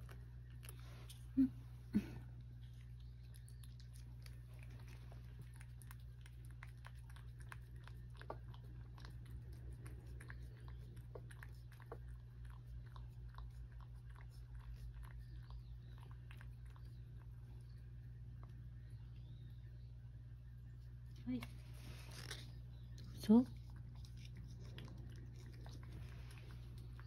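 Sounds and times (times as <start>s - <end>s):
steady low hum: 0.0s - 27.0s
cat licking wet clicks: 2.6s - 17.4s.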